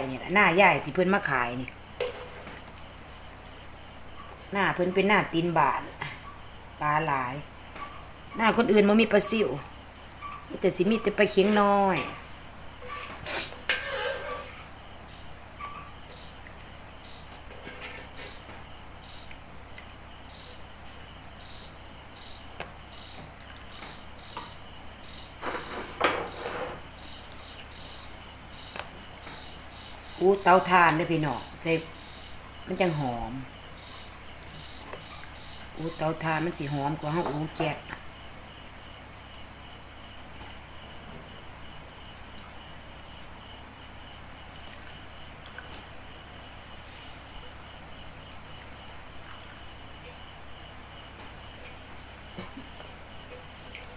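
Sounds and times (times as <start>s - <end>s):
cricket chirping: 0.0s - 53.9s.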